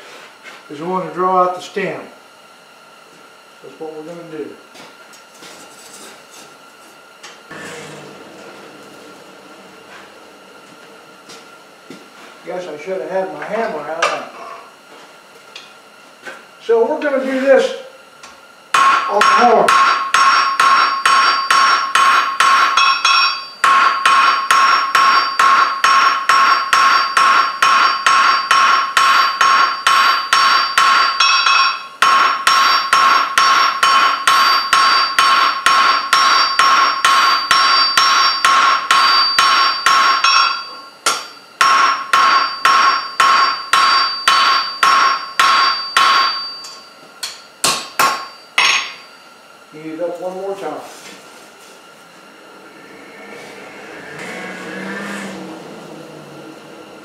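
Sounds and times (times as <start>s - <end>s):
hammer striking steel on anvil: 18.7s - 49.2s
anvil ringing: 18.7s - 49.3s.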